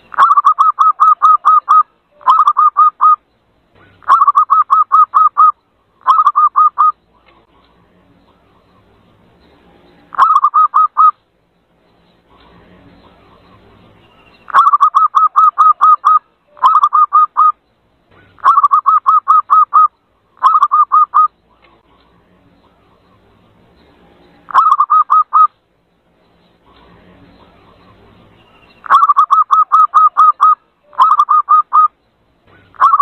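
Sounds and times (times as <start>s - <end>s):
dove cooing: 0.1s - 3.2s, 3.8s - 7.0s, 10.1s - 11.2s, 14.5s - 17.6s, 18.2s - 21.3s, 24.5s - 25.5s, 28.9s - 31.9s, 32.6s - 33.0s.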